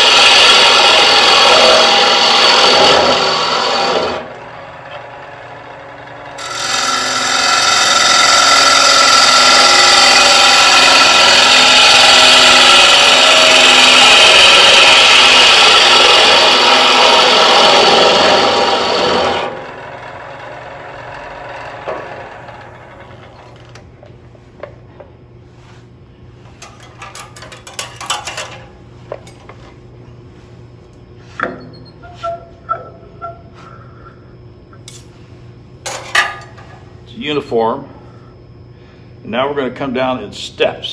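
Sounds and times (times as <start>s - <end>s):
gouge cutting wood on lathe: 0.0s - 23.5s.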